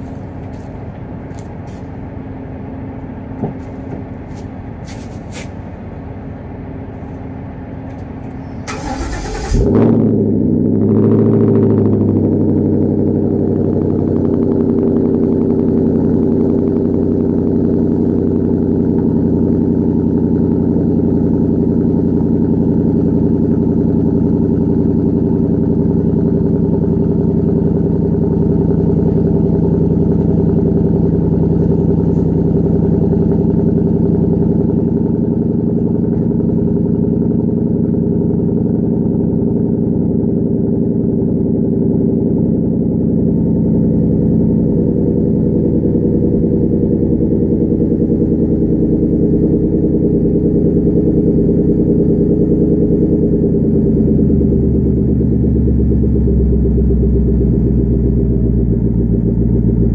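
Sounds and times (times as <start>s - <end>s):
car exhaust idling: 0.0s - 59.9s.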